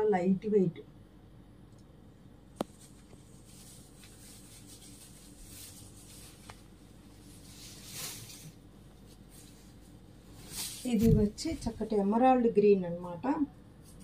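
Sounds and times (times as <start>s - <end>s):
cloth rustling: 2.6s - 11.9s.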